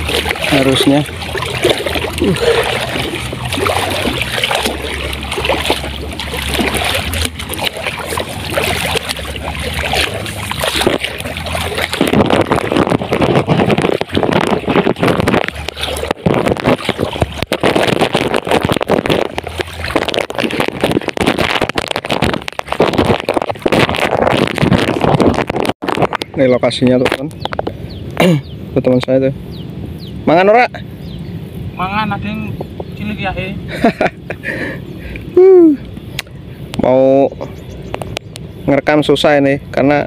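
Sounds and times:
wading through water sloshing: 0.0s - 26.2s.

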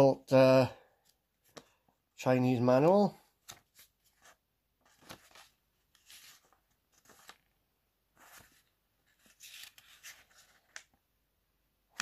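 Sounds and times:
paper rustling: 3.3s - 11.0s.

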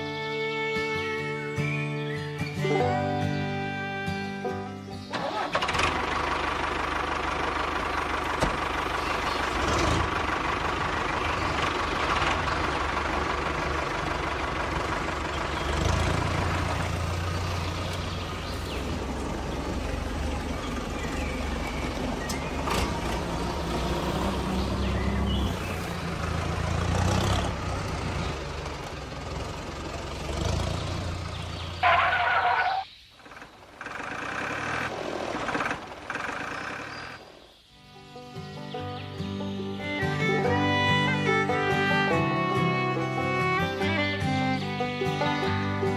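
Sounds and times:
toy tractor engine rumble: 5.1s - 37.5s.

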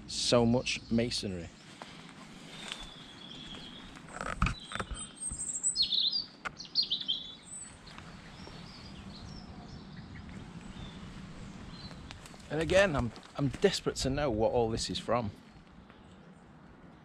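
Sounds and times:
faint outdoor background: 0.0s - 17.0s
birds singing and chirping: 0.2s - 16.4s
sharp knocks and crackles: 3.9s - 5.5s.

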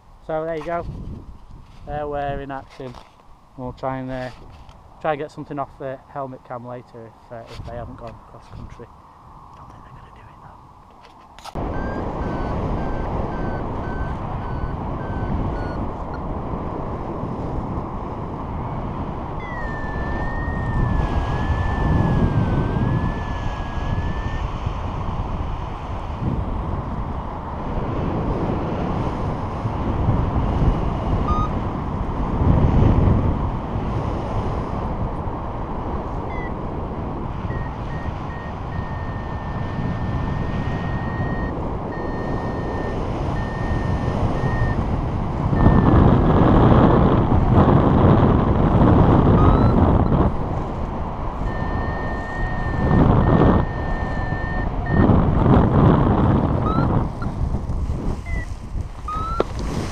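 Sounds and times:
wind rushing over microphone: 0.0s - 59.9s
variometer beeps and tone: 11.6s - 16.2s, 19.4s - 24.5s, 31.2s - 31.6s, 36.2s - 36.6s, 37.4s - 44.9s, 45.5s - 46.1s, 49.2s - 50.2s, 51.4s - 55.3s, 56.5s - 57.4s, 58.2s - 59.5s.

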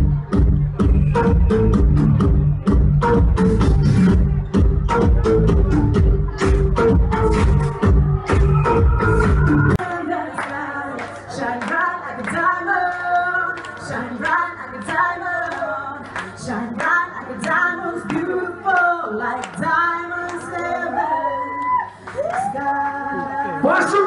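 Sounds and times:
dance backing track: 0.0s - 20.9s
clapping beat: 6.3s - 19.7s
woman singing into microphone: 9.7s - 24.0s.

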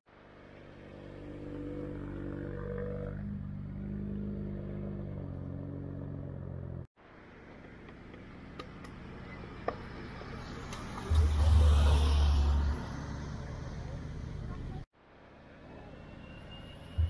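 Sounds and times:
car engine passing: 0.1s - 17.0s.

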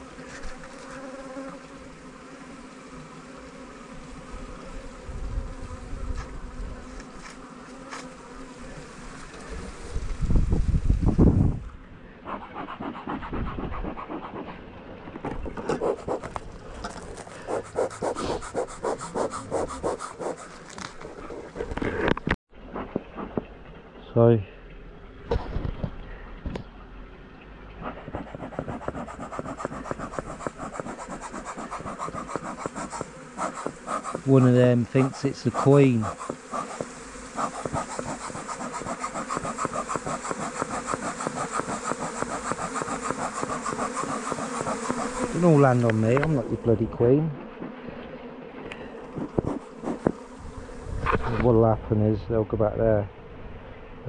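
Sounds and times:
bees buzzing: 0.0s - 10.5s, 11.4s - 22.4s, 24.7s - 51.3s
rhythmic scraping and rubbing: 12.3s - 14.6s, 15.6s - 23.5s, 27.8s - 46.4s, 49.2s - 50.2s.

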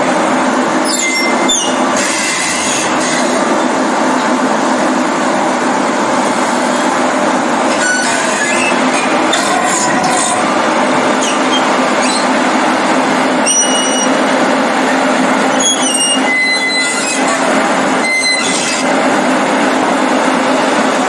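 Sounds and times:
low machine hum: 0.0s - 21.0s
steel tracks clanking on concrete: 0.0s - 21.0s
high metal-on-metal squeals: 0.8s - 3.4s, 7.7s - 10.5s, 11.1s - 12.4s, 13.4s - 14.2s, 15.5s - 18.9s.

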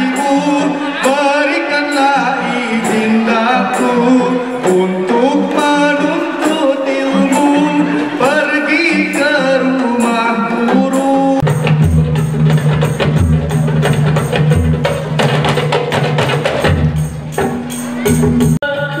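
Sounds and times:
man singing: 0.0s - 11.5s, 18.0s - 19.0s
frame drums playing driving rhythm: 1.9s - 19.0s
tambourines: 9.1s - 19.0s
heavy low drum beat: 11.4s - 18.8s.

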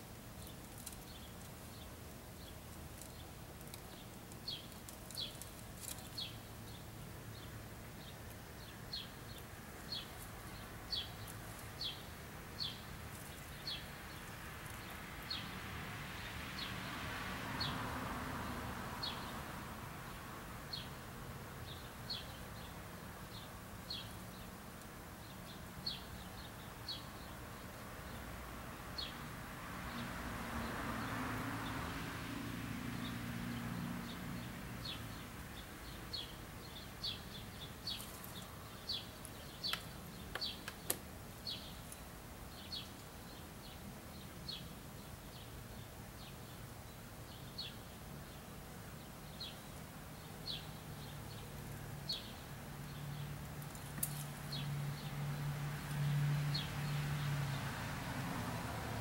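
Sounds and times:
road noise: 0.0s - 59.0s
small bird chirping: 0.4s - 15.6s, 34.0s - 48.4s
sharp clicks: 39.7s - 41.0s.

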